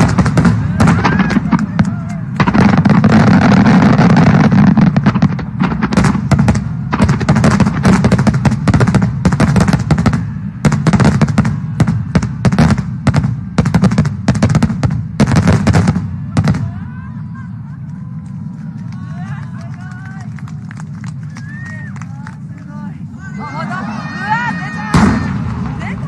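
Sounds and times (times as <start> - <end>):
fireworks booming: 0.0 - 17.6, 23.8 - 26.0.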